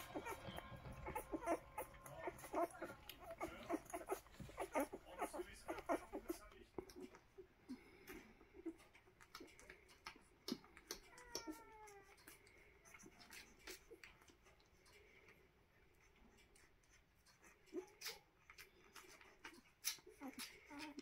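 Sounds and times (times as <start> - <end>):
puppy squeaking: 0.0 - 7.2, 10.5 - 14.0
puppies suckling clicks: 0.0 - 21.0.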